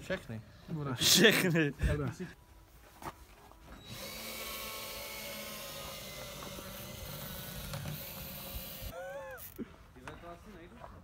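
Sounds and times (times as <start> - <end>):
small motor whirring: 3.8 - 9.6.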